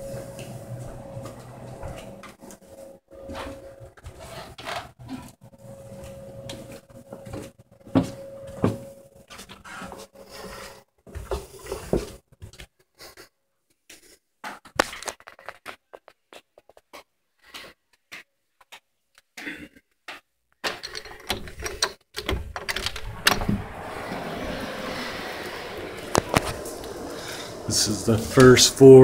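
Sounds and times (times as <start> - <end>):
footsteps thumping and knocking: 7.2 - 8.9
faint steady hum: 23.1 - 29.0.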